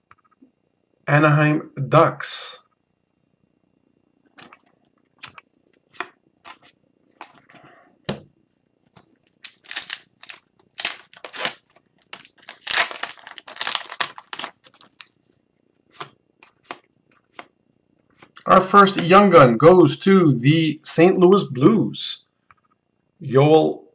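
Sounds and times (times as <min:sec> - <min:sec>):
foil wrapper crinkling and tearing: 0:09.0 - 0:15.2.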